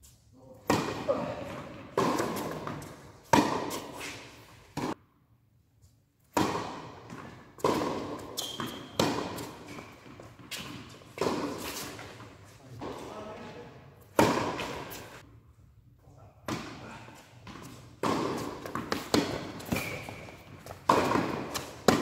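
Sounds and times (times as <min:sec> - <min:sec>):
tennis ball hits echoing: 0:00.6 - 0:03.8, 0:06.3 - 0:10.2, 0:14.2 - 0:14.9, 0:18.0 - 0:22.0
tennis ball bouncing: 0:00.6 - 0:04.1, 0:04.7 - 0:05.0, 0:06.3 - 0:12.2, 0:14.1 - 0:15.2, 0:17.4 - 0:22.0.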